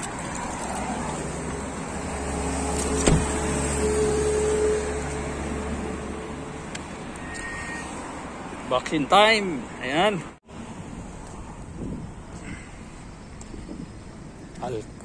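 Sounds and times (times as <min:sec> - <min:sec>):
car and road noise: 0:00.0 - 0:15.0
sharp thump: 0:03.0 - 0:03.4
faint short beep: 0:07.2 - 0:07.9.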